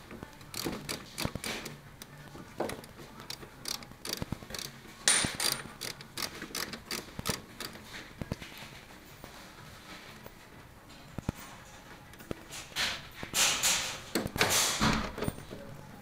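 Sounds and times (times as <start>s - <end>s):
socket ratchet clicking: 0.4s - 2.1s, 2.7s - 7.8s.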